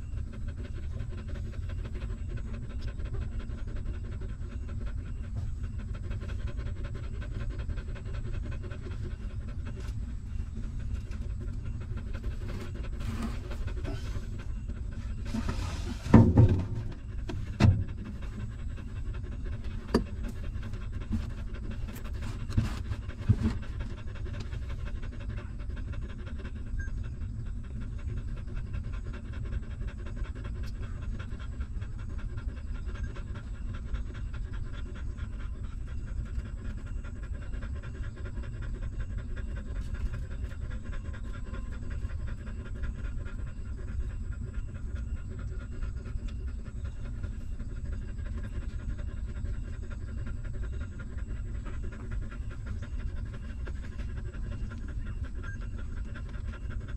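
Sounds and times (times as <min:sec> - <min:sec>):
dog panting: 0:00.0 - 0:56.9
rustle: 0:09.1 - 0:18.5.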